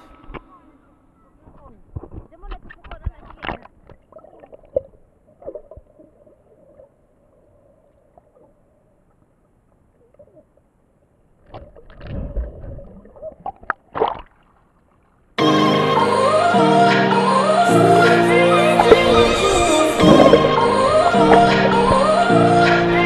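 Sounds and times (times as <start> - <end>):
water sloshing: 18.6 - 23.0.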